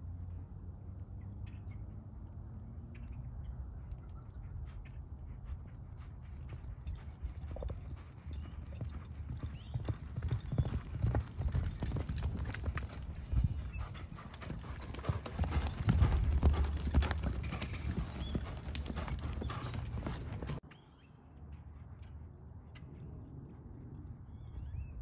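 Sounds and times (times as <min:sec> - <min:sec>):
horse hooves galloping on dirt: 0:02.8 - 0:20.6.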